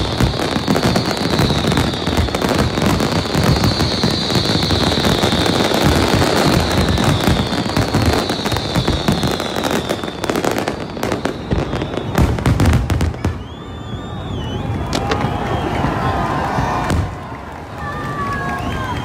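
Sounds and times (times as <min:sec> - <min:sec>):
fireworks crackling and bangs: 0:00.0 - 0:19.0
high falling whistle: 0:06.9 - 0:16.9
wavering high whistle: 0:10.6 - 0:16.8.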